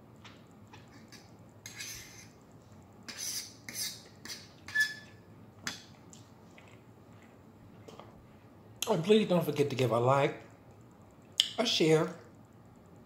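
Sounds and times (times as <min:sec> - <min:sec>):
fork scraping a plate: 0:00.8 - 0:02.4, 0:03.1 - 0:05.2.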